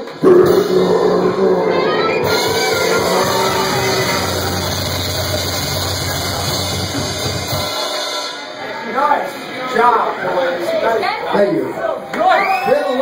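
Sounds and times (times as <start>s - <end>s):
amplifier noise: 0.0s - 7.6s
distorted electric guitars and bass: 0.0s - 7.8s.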